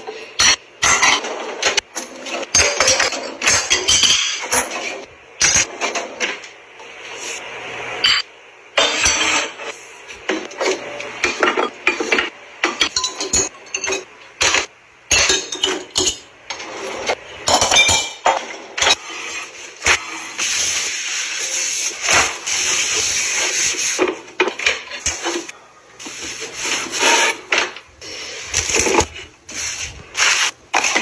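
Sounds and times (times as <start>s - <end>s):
wooden utensils clattering: 0.0s - 6.6s, 10.3s - 19.8s, 28.6s - 31.0s
ceramic dishes clinking: 11.5s - 14.1s, 17.5s - 18.5s
drawers sliding and knocking: 21.6s - 31.0s.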